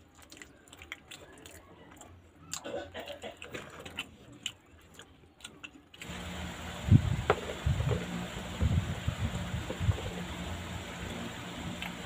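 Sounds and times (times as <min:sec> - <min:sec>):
person chewing: 0:00.0 - 0:06.1.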